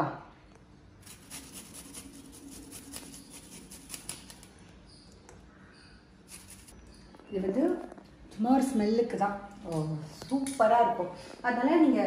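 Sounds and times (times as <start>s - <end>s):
garlic scraping on metal grater: 1.0s - 4.5s, 6.3s - 6.8s.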